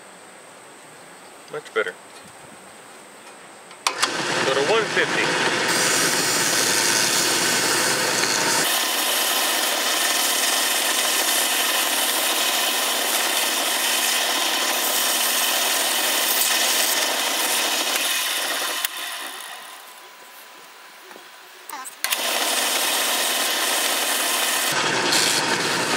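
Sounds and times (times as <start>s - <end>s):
lathe running: 3.9s - 20.4s, 22.0s - 25.9s
sandpaper rubbing wood: 5.7s - 18.4s.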